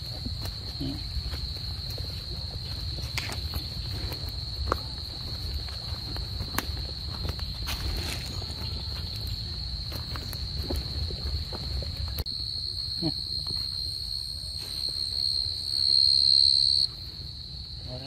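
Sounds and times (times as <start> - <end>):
footsteps on leaf litter: 0.0 - 12.2
high-pitched insect trill: 0.0 - 18.0.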